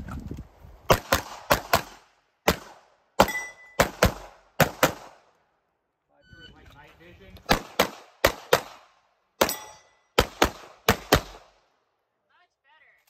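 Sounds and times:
brief ringing tone: 0:06.2 - 0:06.6
handgun shots: 0:07.4 - 0:08.8.

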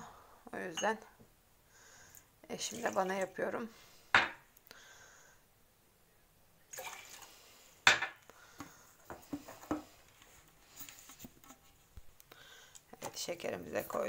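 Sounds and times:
cup clinking on countertop: 0:07.9 - 0:08.2.

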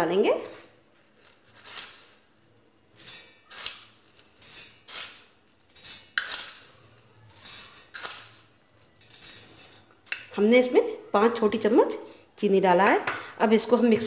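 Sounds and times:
sugar pouring into a steel jar: 0:01.0 - 0:10.3
spoon scraping: 0:01.0 - 0:10.7.

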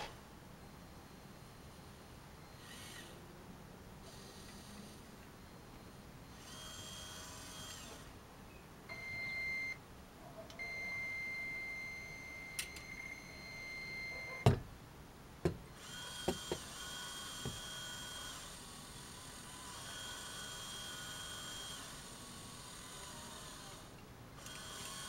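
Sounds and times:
toy electric motors whining: 0:02.6 - 0:03.2, 0:06.3 - 0:08.1, 0:15.8 - 0:25.0.

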